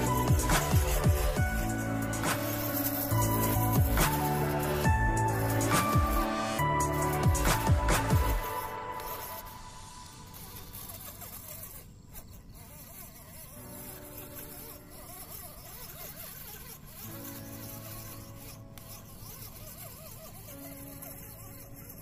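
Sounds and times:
soft background music: 0.0s - 11.8s, 12.6s - 22.0s
electric motor and gearbox whining: 0.0s - 22.0s.

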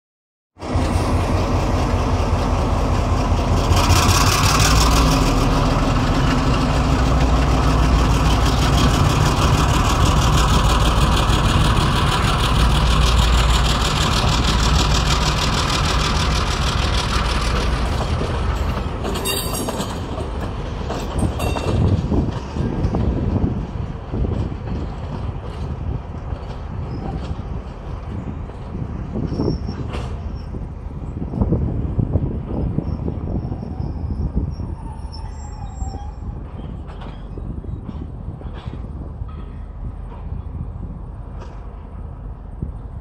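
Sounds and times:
wheels clanking over track: 0.6s - 31.6s
locomotive engine rumble: 0.6s - 43.0s
rail noise: 0.6s - 43.0s.

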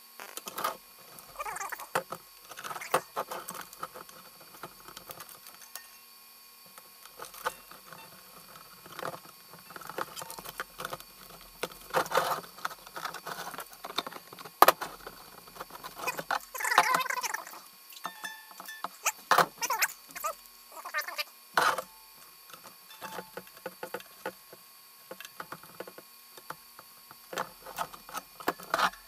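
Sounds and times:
string rustling and scraping: 7.1s - 17.0s.

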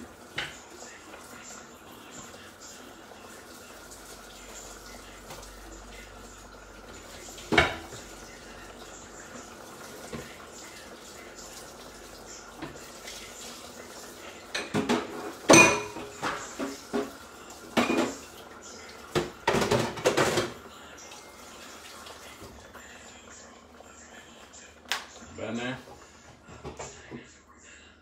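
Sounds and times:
pots and dishes clattering: 0.2s - 0.8s, 7.2s - 8.8s, 9.4s - 10.6s, 12.5s - 20.7s, 25.7s - 27.3s.

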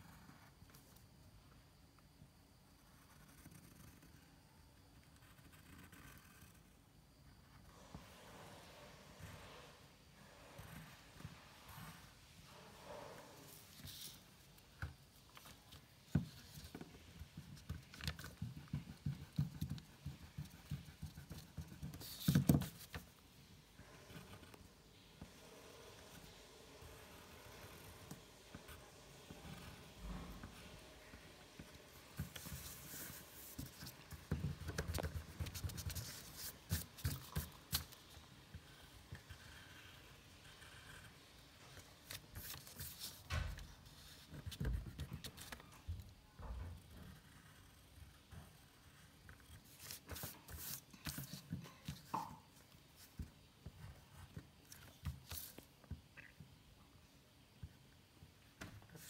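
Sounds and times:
pencil drawing on paper: 2.7s - 45.7s, 46.5s - 55.7s
eraser rubbing paper: 25.4s - 45.6s, 46.9s - 51.5s
paper rustling: 42.0s - 45.7s.

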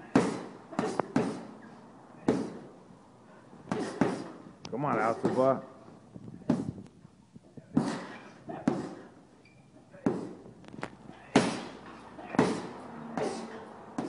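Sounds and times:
punches thudding on heavy bag: 0.0s - 1.6s, 2.2s - 2.7s, 3.7s - 5.6s, 7.7s - 9.1s, 10.0s - 10.4s, 11.2s - 14.0s.

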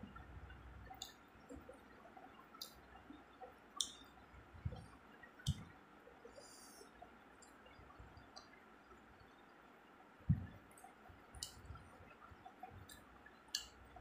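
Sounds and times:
wet clicks of eating by hand: 0.9s - 5.8s, 7.4s - 8.6s, 10.4s - 14.0s
soft thumps: 10.3s - 10.6s.

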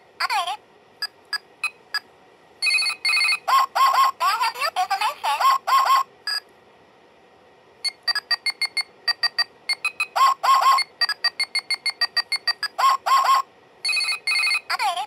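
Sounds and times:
toy phone trilling ring: 2.6s - 4.1s, 8.1s - 14.8s
electronic beep: 7.9s - 14.6s
electronic beep tune: 7.9s - 14.6s.

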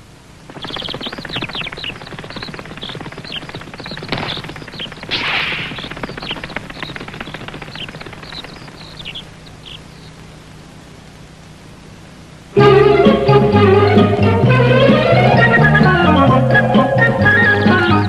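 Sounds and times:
rattling flutter of wingbeats: 0.4s - 10.3s
small birds chirping: 0.4s - 12.1s, 15.0s - 18.0s.

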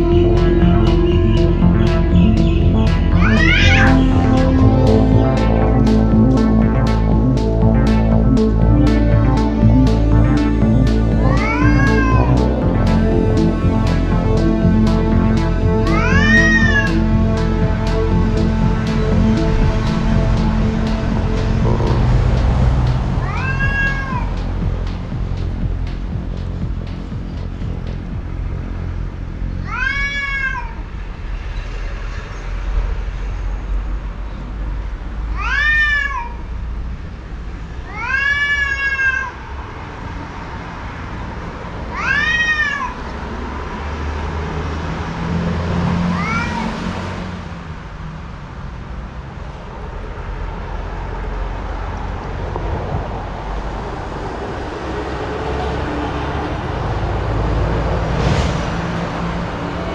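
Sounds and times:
cat yowling: 3.2s - 3.9s, 11.3s - 12.3s, 16.0s - 16.8s, 23.2s - 24.3s, 29.6s - 30.8s, 35.4s - 36.4s, 37.9s - 39.4s, 41.9s - 43.0s, 46.1s - 46.7s.

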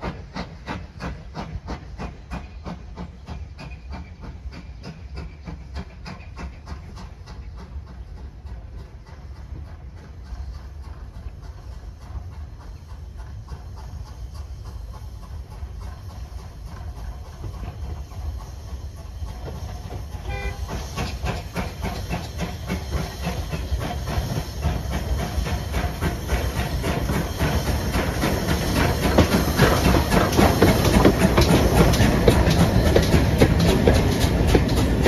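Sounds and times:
steam hiss: 0.0s - 35.0s
steam locomotive exhaust beats: 0.0s - 35.0s
wheels on rails: 0.0s - 35.0s
steam whistle: 20.2s - 20.8s.

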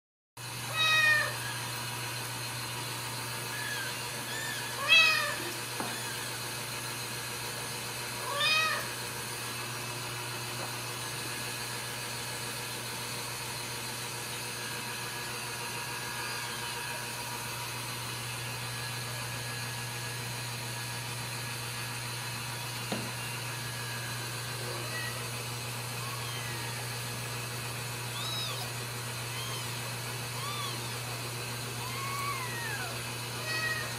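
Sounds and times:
cat meowing: 0.7s - 1.5s, 3.5s - 6.3s, 8.2s - 9.0s, 24.6s - 25.2s, 26.0s - 26.9s, 28.1s - 31.0s, 31.8s - 33.9s.

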